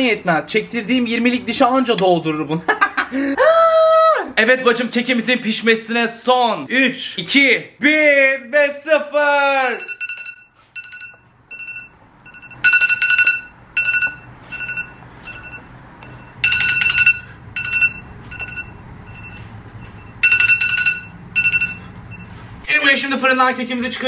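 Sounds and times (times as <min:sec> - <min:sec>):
phone timer alarm beeping: 0:09.8 - 0:22.4.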